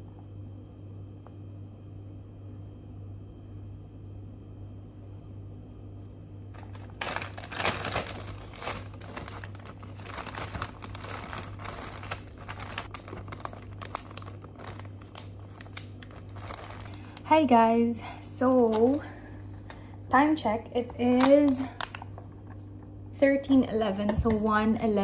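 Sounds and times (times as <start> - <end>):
low room hum: 0.0 - 25.0
plastic bag crinkling: 6.5 - 17.4, 20.8 - 22.2.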